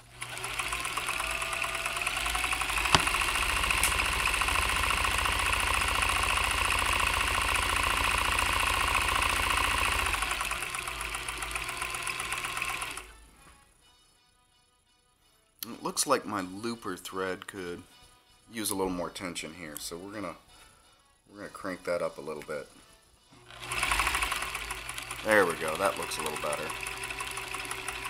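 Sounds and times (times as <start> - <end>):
sewing machine running: 0.0 - 13.2, 23.4 - 28.0.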